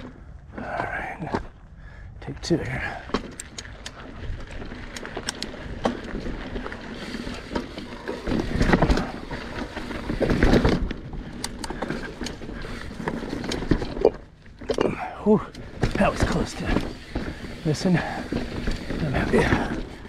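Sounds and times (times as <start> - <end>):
bike clicks and rattles: 0.0 - 20.0
tyres rolling over rock: 4.0 - 20.0.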